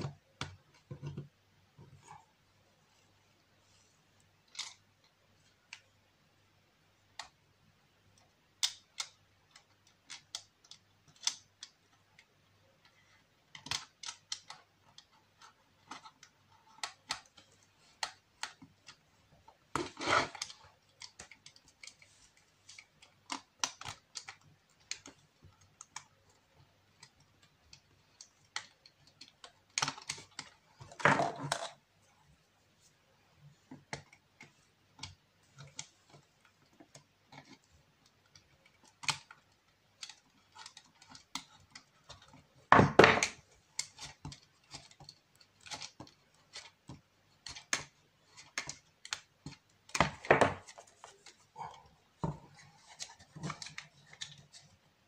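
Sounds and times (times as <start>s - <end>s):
light clicks and taps: 33.4s - 55.0s.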